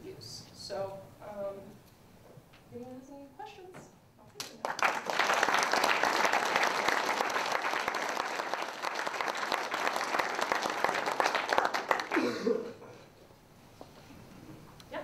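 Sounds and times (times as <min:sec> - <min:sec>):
audience applauding: 0:04.6 - 0:12.6.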